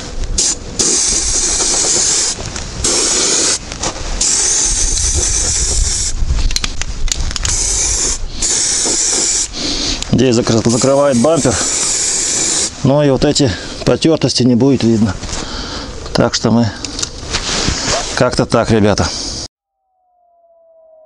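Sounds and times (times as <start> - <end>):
aerosol can spraying: 0.4 - 3.6, 4.2 - 6.2, 7.4 - 9.7, 10.6 - 12.8.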